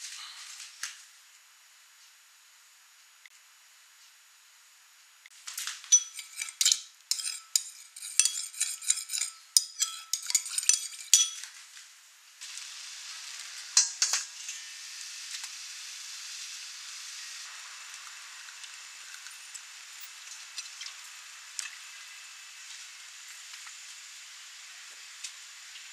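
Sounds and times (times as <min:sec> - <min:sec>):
hot pan sizzling: 0:05.3 - 0:11.6, 0:12.4 - 0:25.9
metal spoon clinking in ceramic bowl: 0:05.9 - 0:11.5.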